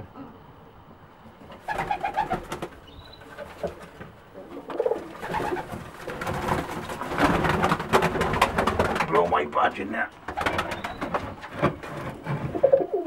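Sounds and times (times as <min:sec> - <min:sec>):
pigeon wings flapping: 0:01.6 - 0:04.0, 0:04.7 - 0:09.3, 0:10.3 - 0:12.7
pigeons cooing: 0:01.6 - 0:06.3, 0:12.1 - 0:13.0.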